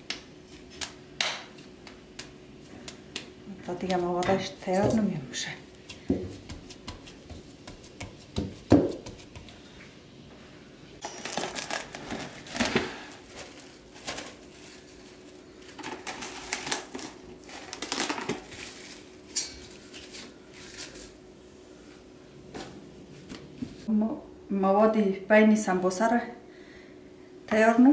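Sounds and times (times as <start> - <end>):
hands knocking dough in bowl: 5.8 - 9.6
plastic cling wrap crinkling: 11.0 - 21.2.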